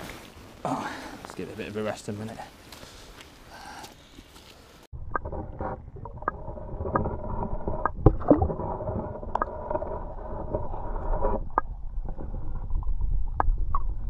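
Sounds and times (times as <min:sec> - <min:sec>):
underwater churn of water: 0:05.0 - 0:13.8.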